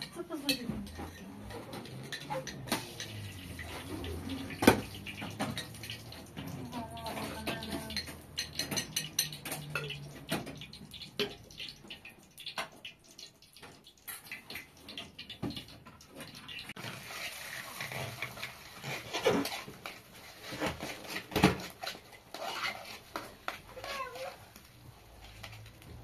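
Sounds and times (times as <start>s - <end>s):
metal spoon scraping frying pan: 0.0s - 10.1s, 16.8s - 25.8s
frying hiss: 0.0s - 26.0s.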